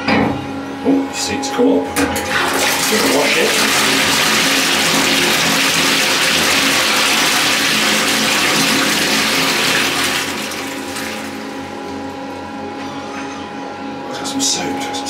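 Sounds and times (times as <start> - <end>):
water spraying into steel toilet bowl: 2.3 - 11.3.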